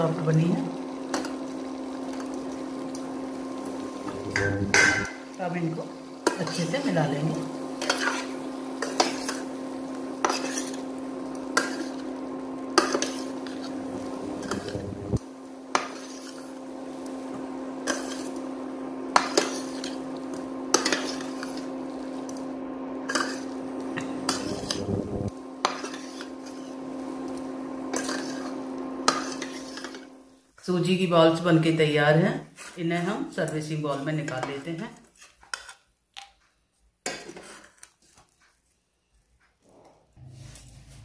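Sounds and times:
steady low hum: 0:03.8 - 0:05.3, 0:13.4 - 0:15.4, 0:23.6 - 0:25.6
metal spoon scraping a steel pan: 0:04.2 - 0:05.2, 0:07.8 - 0:09.5, 0:10.2 - 0:10.9, 0:12.8 - 0:13.8, 0:23.1 - 0:23.5, 0:25.6 - 0:26.8, 0:27.9 - 0:28.5, 0:29.1 - 0:30.0, 0:34.3 - 0:35.8, 0:37.1 - 0:37.8.

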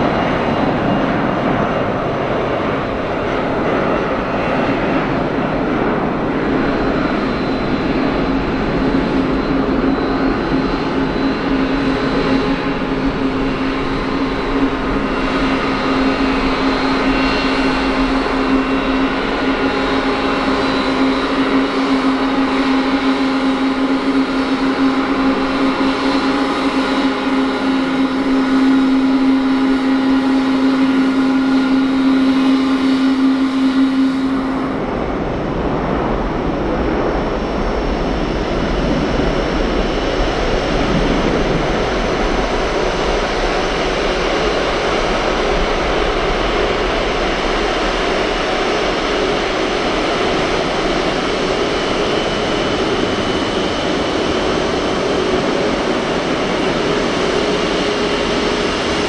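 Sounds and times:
jet engines taxiing: 0:00.0 - 0:59.0
jet engines whining on climb: 0:00.0 - 0:59.0.

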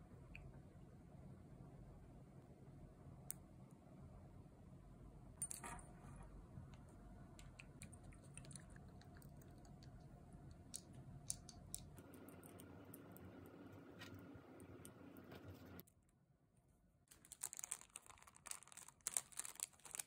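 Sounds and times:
plastic sheet crinkling: 0:17.1 - 0:20.0.

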